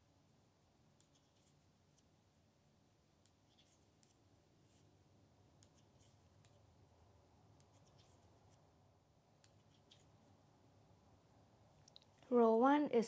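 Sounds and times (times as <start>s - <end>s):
knitting needles clicking and scraping: 0.9s - 2.2s, 3.1s - 6.8s, 7.4s - 10.3s, 11.8s - 12.4s.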